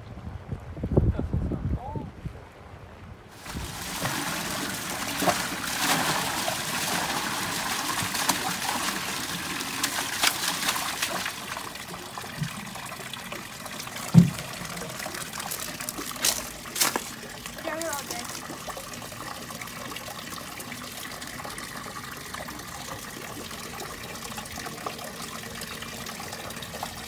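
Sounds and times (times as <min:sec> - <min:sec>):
water pouring into pond: 0:03.4 - 0:27.0
low thump: 0:14.1 - 0:14.5.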